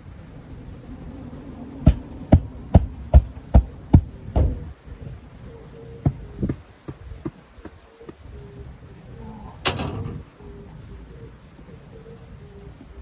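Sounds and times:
futon beater thumping futon: 0:01.8 - 0:04.6.

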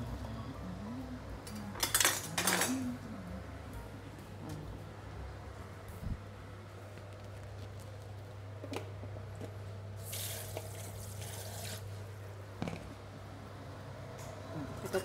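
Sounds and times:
steady low hum: 0:02.7 - 0:10.1
kitchen tap running: 0:10.0 - 0:11.9.

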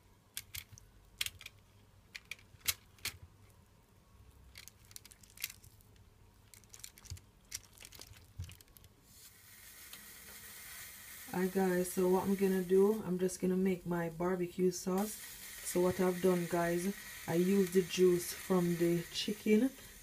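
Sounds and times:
faint hiss: 0:09.0 - 0:20.0.

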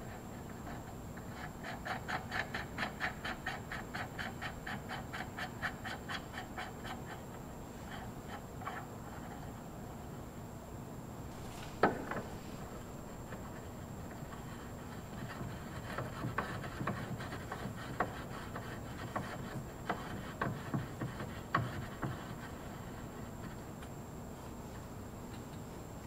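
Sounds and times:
light metal rubbing: 0:11.2 - 0:23.6.

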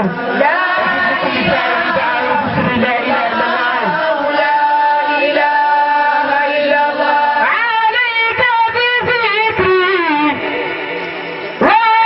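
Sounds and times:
woman chanting: 0:07.4 - 0:10.5.

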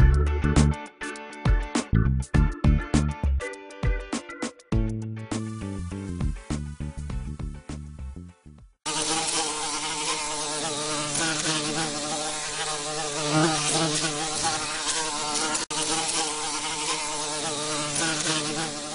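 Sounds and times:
background music: 0:00.0 - 0:08.8
buzzing bee sound effect: 0:08.9 - 0:18.9.

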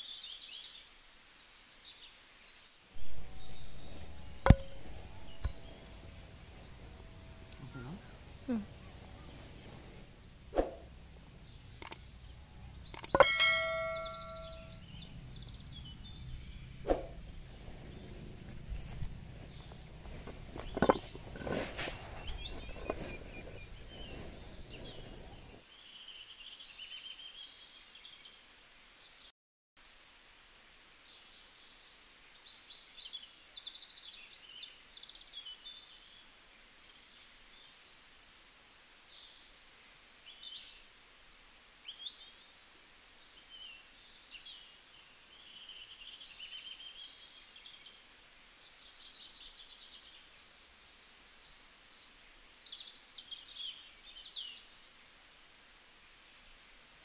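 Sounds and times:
faint bird chirps: 0:02.4 - 0:25.6
high drone of insects: 0:03.0 - 0:25.6
stones knocking together: 0:18.5 - 0:23.8.

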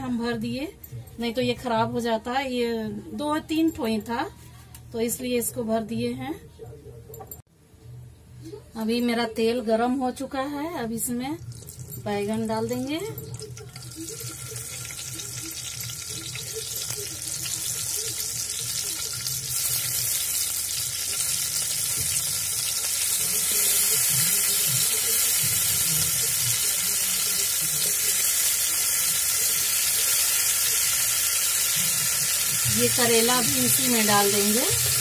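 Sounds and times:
hot oil sizzling: 0:11.4 - 0:35.0.

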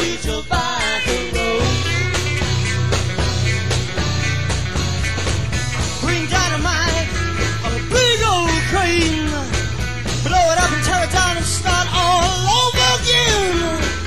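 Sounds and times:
bass and electric guitar: 0:00.0 - 0:14.0
psychedelic rock band playing: 0:00.0 - 0:14.0
person singing: 0:10.2 - 0:14.0.

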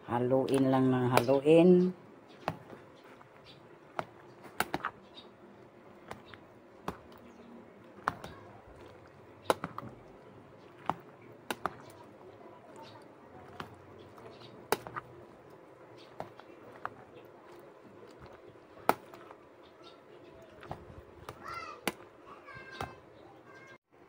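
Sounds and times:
metal spoon stirring salad: 0:05.9 - 0:21.2.

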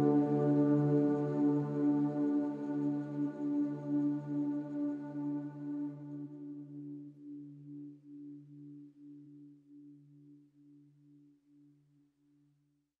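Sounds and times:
ambient music with low pulsing tone: 0:00.0 - 0:06.4.

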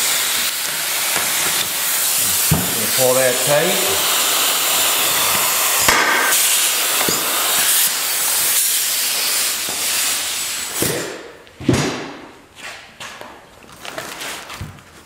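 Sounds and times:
rivet gun air hissing: 0:00.0 - 0:11.3.

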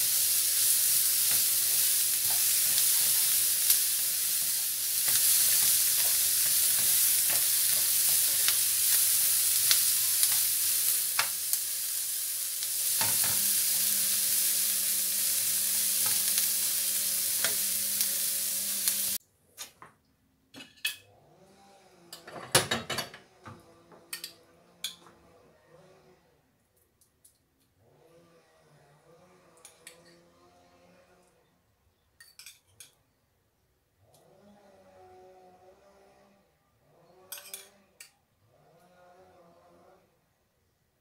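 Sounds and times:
vegetables sizzling in a frying pan: 0:00.0 - 0:19.2.

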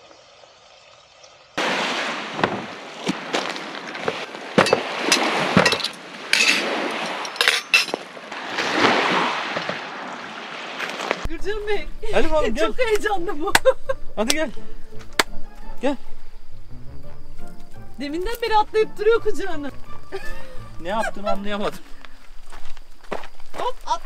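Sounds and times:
dishes and cutlery clinking: 0:04.6 - 0:08.0.

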